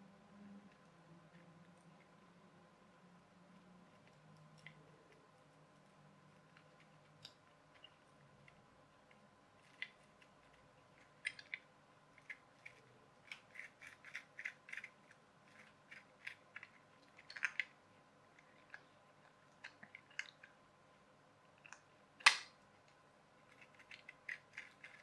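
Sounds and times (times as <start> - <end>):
plastic gears clicking and scraping: 23.5 - 25.0.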